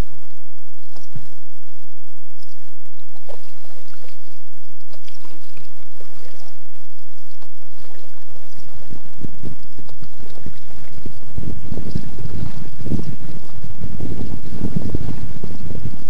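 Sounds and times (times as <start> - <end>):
paddle dipping into water: 3.0 - 13.5.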